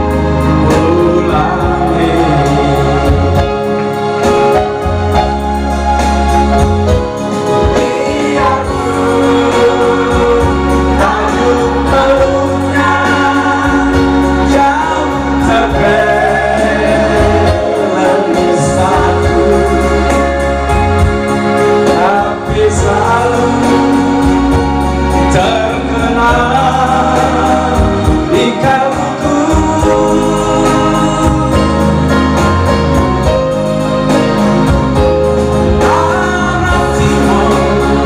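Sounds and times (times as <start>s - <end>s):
man singing: 0.0s - 5.3s, 7.3s - 33.4s, 34.7s - 38.0s
electronic keyboard: 0.0s - 38.0s
steady bass line: 0.0s - 38.0s.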